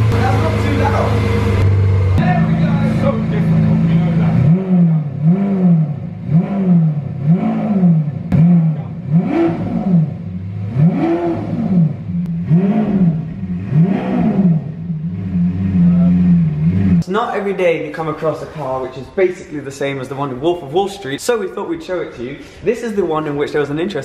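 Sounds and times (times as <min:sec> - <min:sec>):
car engine revving: 0:00.0 - 0:17.1.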